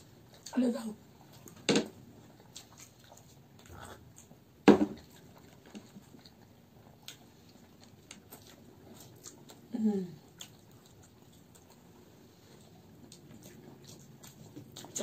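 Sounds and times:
soft chewing: 0:00.0 - 0:15.0
loud sharp thump: 0:04.7 - 0:05.0.

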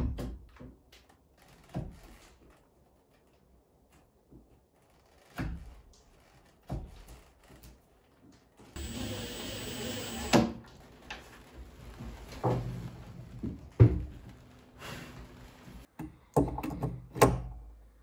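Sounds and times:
drill stopping click: 0:08.8 - 0:10.5
cordless drill running: 0:08.8 - 0:10.6.

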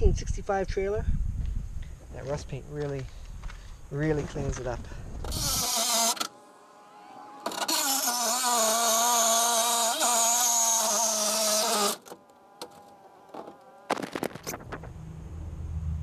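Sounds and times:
reciprocating saw cutting steel: 0:05.3 - 0:13.9.

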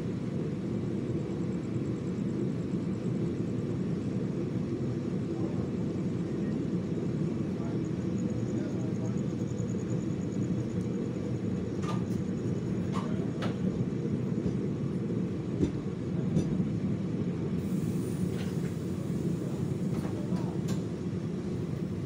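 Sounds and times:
train wheels rumbling on rail: 0:00.0 - 0:22.0.

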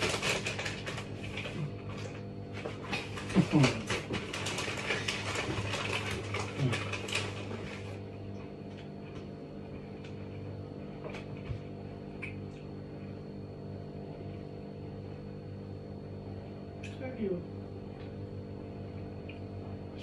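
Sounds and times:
steady electrical hum: 0:00.0 - 0:20.0.

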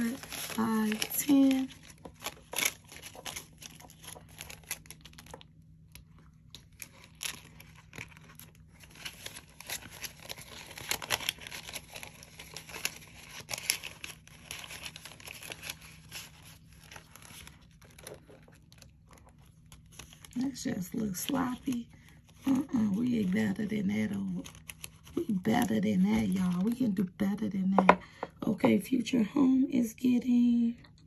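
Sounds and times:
banknotes rustling: 0:00.0 - 0:05.4
plastic pouch crinkling: 0:00.0 - 0:26.9.

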